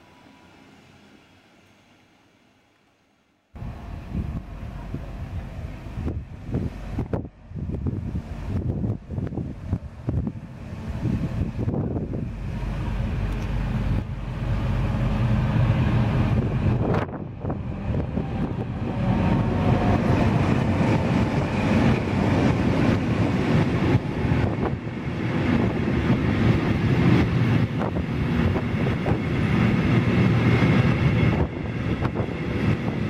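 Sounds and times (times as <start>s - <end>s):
train wheels rumbling on rail: 3.6s - 33.0s
train clicks: 12.7s - 14.1s.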